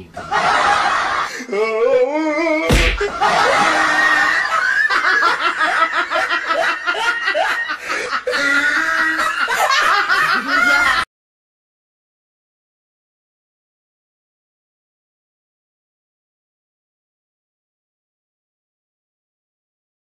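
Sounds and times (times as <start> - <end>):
person laughing hard: 0.3 - 11.1.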